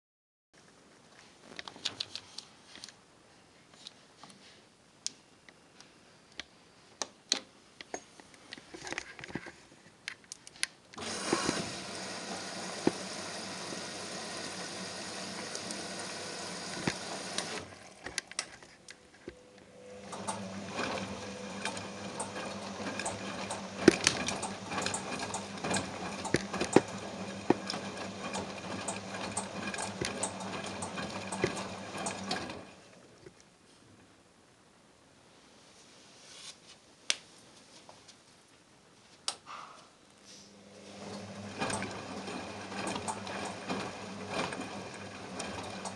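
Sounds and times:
washing machine motor hum: 0:11.0 - 0:18.5, 0:19.4 - 0:33.1, 0:40.5 - 0:45.9.

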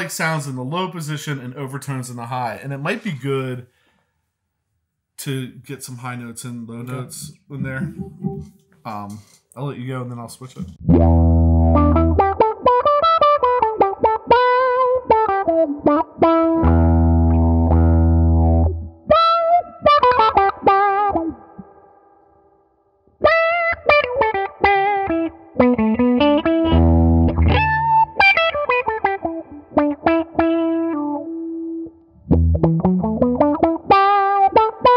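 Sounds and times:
electric guitar with auto-wah: 0:10.8 - 0:21.8, 0:23.2 - 0:34.9.

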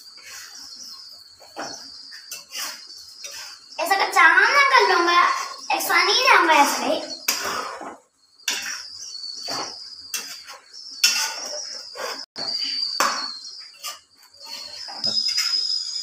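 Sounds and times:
metal spoon scraping a pot: 0:02.3 - 0:03.7, 0:07.2 - 0:13.1
high-pitched whine: 0:08.2 - 0:16.0.

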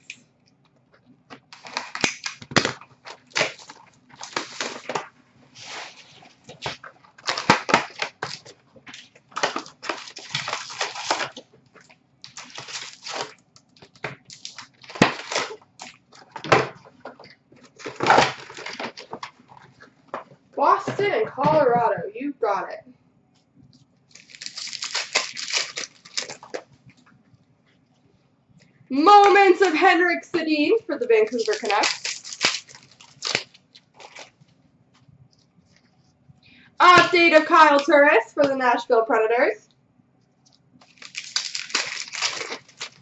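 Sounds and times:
foil wrappers crinkling: 0:01.4 - 0:21.2, 0:23.8 - 0:27.0, 0:31.1 - 0:34.6, 0:40.4 - 0:43.0
cardboard rustling: 0:01.5 - 0:21.9, 0:24.1 - 0:26.8, 0:31.3 - 0:34.6, 0:40.8 - 0:43.0.

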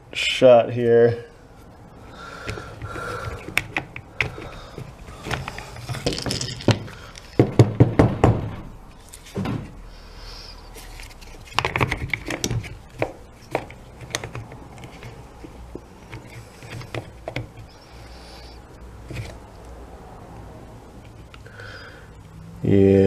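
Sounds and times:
plastic housing clicking and knocking: 0:02.4 - 0:08.4, 0:11.4 - 0:17.7.

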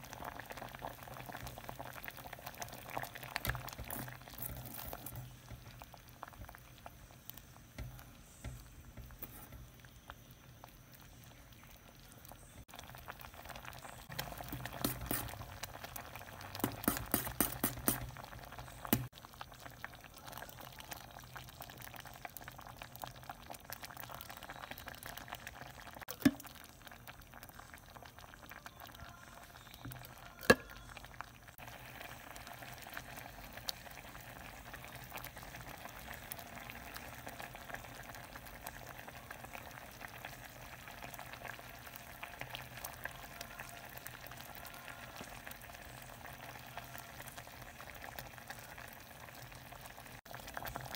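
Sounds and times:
liquid pouring into pot: 0:00.0 - 0:29.0
pot bubbling and popping: 0:00.0 - 0:50.9.

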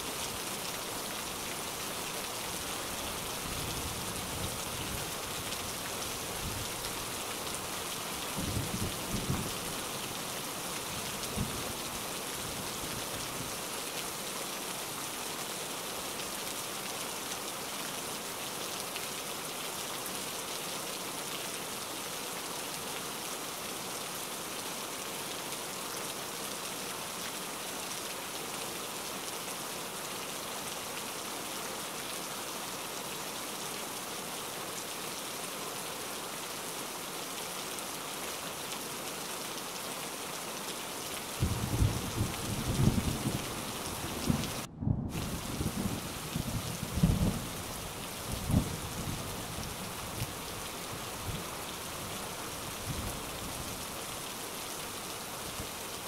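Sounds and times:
rain hiss: 0:00.0 - 0:56.0
thunder rumbles: 0:41.4 - 0:43.4, 0:44.2 - 0:47.5.

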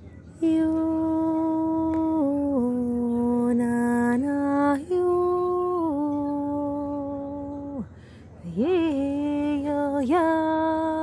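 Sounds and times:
woman breathing: 0:07.9 - 0:08.4.

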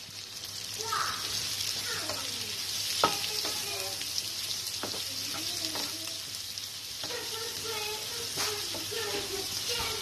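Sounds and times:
vegetables sizzling in a pan: 0:00.0 - 0:10.0
utensil clacking against pan: 0:03.0 - 0:03.8.

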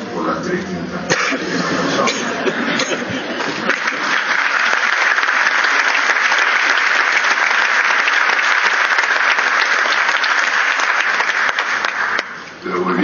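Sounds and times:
audience applauding: 0:03.4 - 0:12.6.

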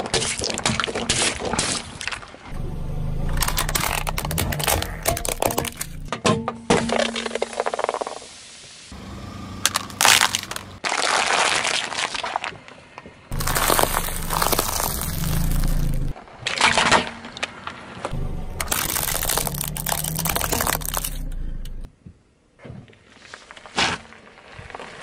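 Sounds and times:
low car rumble: 0:02.5 - 0:06.1, 0:08.9 - 0:10.8, 0:13.3 - 0:16.1, 0:18.1 - 0:21.9
tyre crushing brittle objects: 0:03.2 - 0:06.1, 0:09.6 - 0:12.6, 0:13.3 - 0:21.8.

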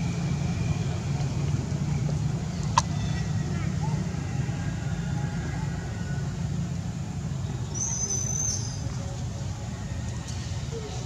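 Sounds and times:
low outdoor rumble: 0:00.0 - 0:11.0
high-pitched whistle-like call: 0:07.7 - 0:08.8.

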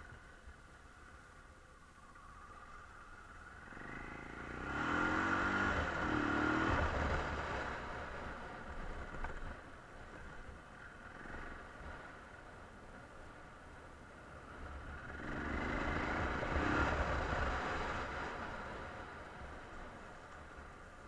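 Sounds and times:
motorcycle engine accelerating: 0:03.4 - 0:09.6, 0:14.4 - 0:19.2.

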